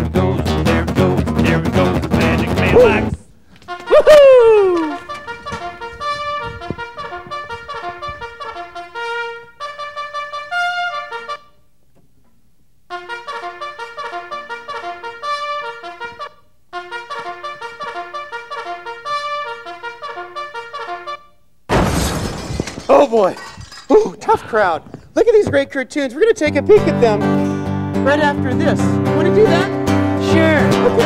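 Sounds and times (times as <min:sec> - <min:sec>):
trumpet playing quick notes: 0:02.2 - 0:11.6, 0:12.9 - 0:21.3.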